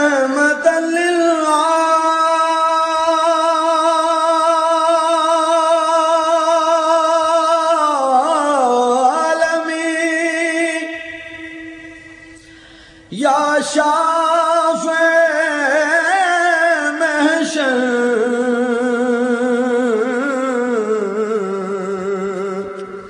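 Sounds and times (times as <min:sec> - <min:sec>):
man singing: 0:00.0 - 0:12.2, 0:13.1 - 0:23.0.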